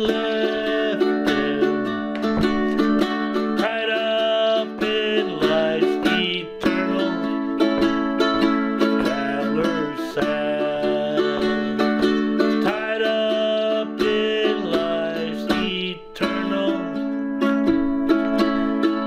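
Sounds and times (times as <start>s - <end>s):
man singing: 0.0s - 17.6s
strummed ukulele: 0.0s - 19.0s.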